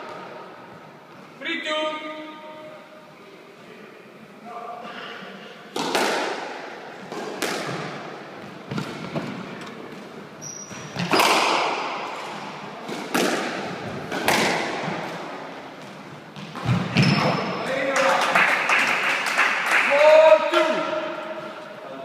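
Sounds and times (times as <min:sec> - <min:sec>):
squash ball smacks: 0:05.8 - 0:08.1, 0:11.0 - 0:15.2
high squeak: 0:10.4 - 0:10.9.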